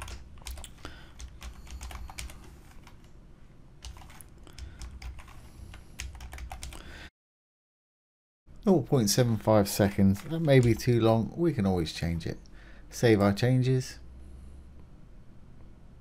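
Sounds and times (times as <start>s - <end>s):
typing on computer keyboard: 0.0s - 3.1s, 3.8s - 6.8s, 10.2s - 11.0s.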